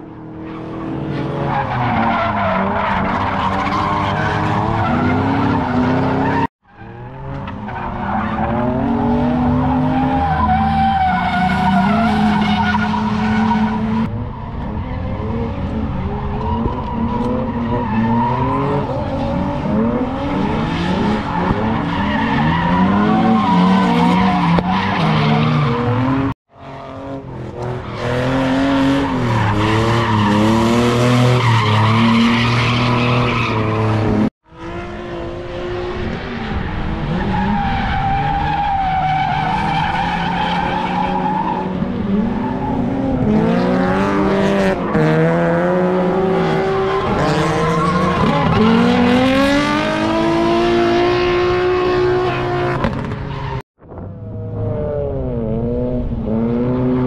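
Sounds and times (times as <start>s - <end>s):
car engines revving: 0.0s - 57.0s
tyre squeal and skidding: 0.4s - 26.8s, 27.8s - 34.3s, 36.2s - 53.6s.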